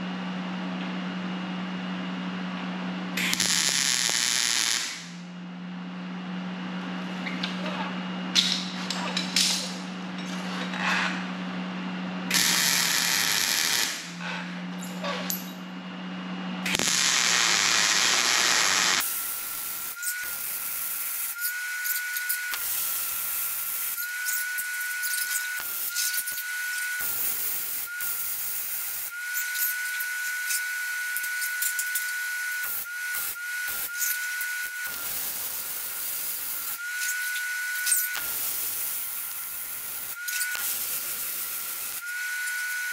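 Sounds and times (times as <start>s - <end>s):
welding arc crackling: 3.2s - 5.1s, 12.3s - 14.2s, 16.7s - 42.9s.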